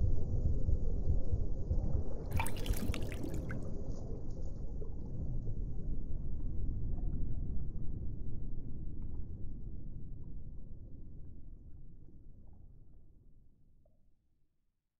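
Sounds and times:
water splashing and bubbling: 2.3 - 5.2.

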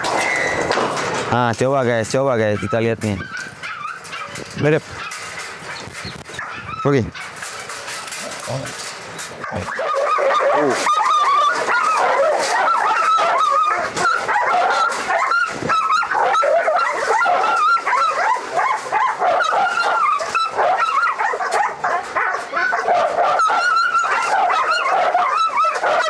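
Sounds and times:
dogs barking and whining: 0.0 - 1.3, 2.2 - 26.0.

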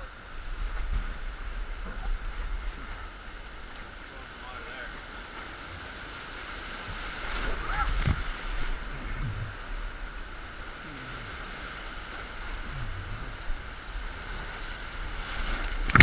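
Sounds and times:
wave splashing over raft: 0.0 - 16.0
whitewater rapids rushing: 3.8 - 16.0.

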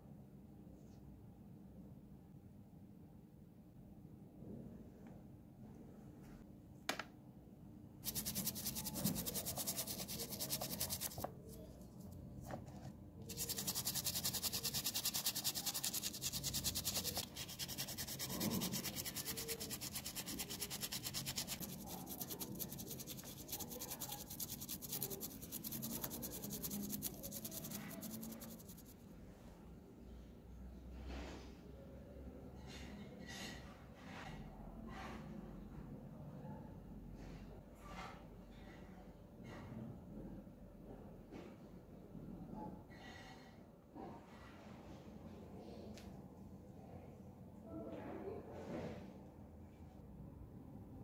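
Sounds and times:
toothbrush scrubbing in soapy water: 8.0 - 11.5, 13.3 - 29.0.

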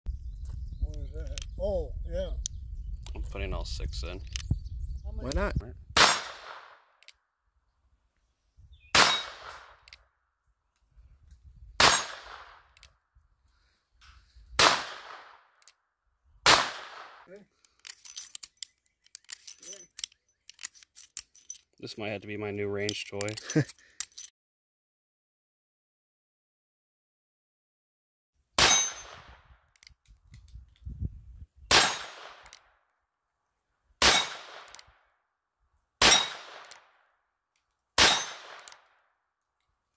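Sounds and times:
revolver gunshots: 6.0 - 6.9, 8.9 - 9.9, 11.8 - 12.7, 14.6 - 15.5, 16.4 - 17.3, 28.6 - 29.4, 31.7 - 32.6, 34.0 - 34.8, 36.0 - 37.0, 38.0 - 38.8.

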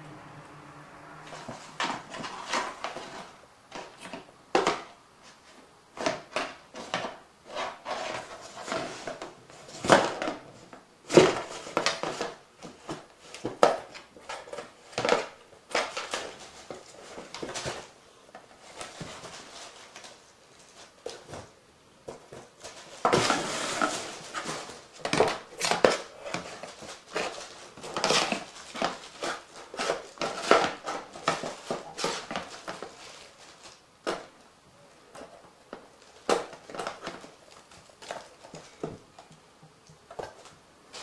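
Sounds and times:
paper crinkling and rustling: 1.3 - 21.5, 22.1 - 34.4.

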